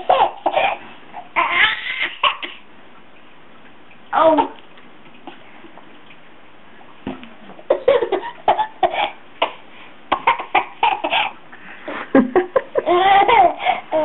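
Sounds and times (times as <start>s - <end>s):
baby laughing: 0.0s - 2.6s, 7.7s - 11.4s, 12.7s - 14.0s.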